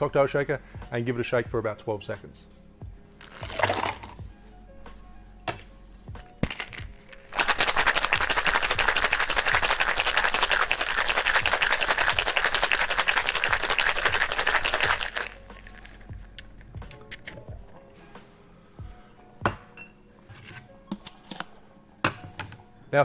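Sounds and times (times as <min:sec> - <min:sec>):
ice rattling in cocktail shaker: 0:03.2 - 0:04.2, 0:06.6 - 0:16.2
shaker tins knocking: 0:06.5 - 0:16.2.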